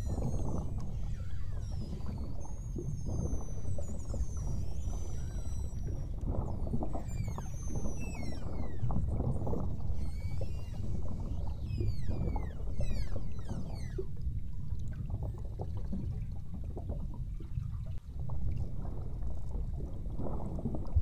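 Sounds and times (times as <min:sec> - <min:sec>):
whales whistling underwater: 0:00.0 - 0:16.1
low underwater rushing noise: 0:00.0 - 0:21.0.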